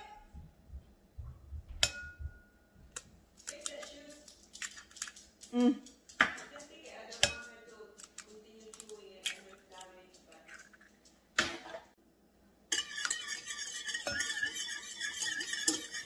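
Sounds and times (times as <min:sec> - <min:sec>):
eggshell cracking: 0:03.4 - 0:05.5.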